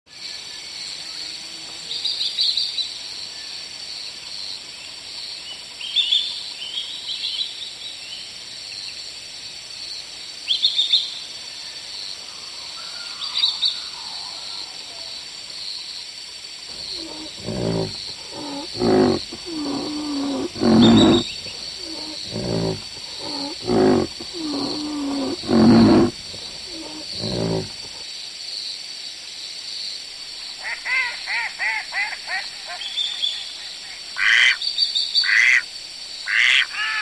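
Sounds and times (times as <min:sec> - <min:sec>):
background hiss: 0:14.8 - 0:36.7
deep animal calls: 0:16.7 - 0:28.0.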